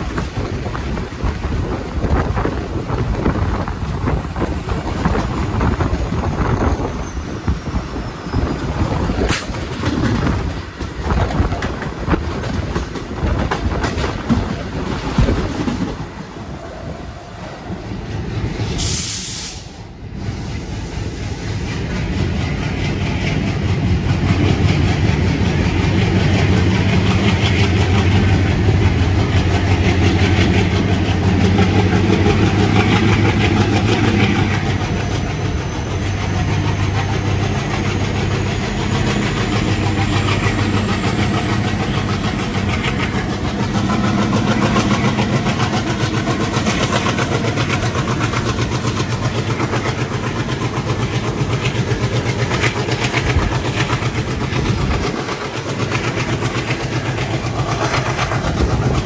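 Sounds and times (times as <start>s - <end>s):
diesel locomotive engine under load: 0.0s - 59.0s
chugging exhaust: 21.0s - 59.0s.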